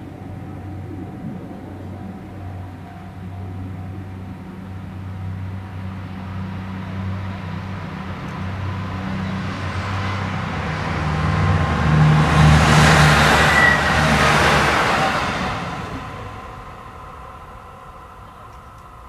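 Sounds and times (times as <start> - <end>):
diesel train engine drone: 0.0 - 19.0
train wheels on rails: 5.4 - 19.0.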